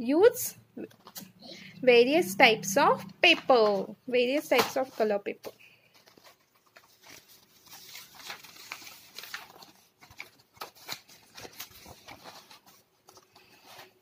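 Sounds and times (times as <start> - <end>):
paper pages turning: 0.9 - 1.4, 4.5 - 14.0.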